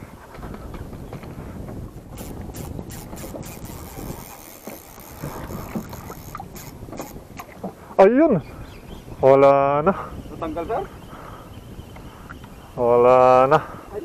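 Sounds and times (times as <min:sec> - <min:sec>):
wind buffeting microphone: 0:00.0 - 0:14.0
water slapping boat hull: 0:00.4 - 0:07.8
fishing reel clicks: 0:02.2 - 0:07.2.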